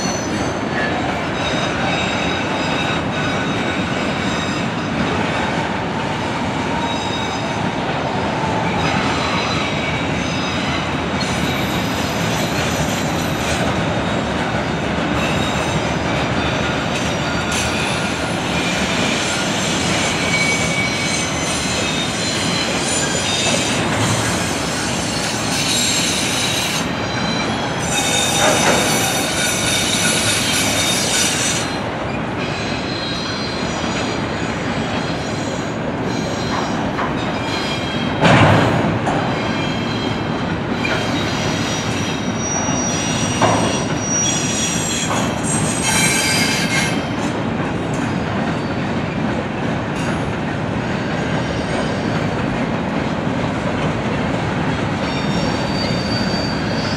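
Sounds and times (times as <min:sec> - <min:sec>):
train wheels rumbling on rails: 0:00.0 - 0:56.9
high-pitched wheel squeal: 0:15.2 - 0:38.2, 0:39.2 - 0:47.1, 0:55.0 - 0:56.9.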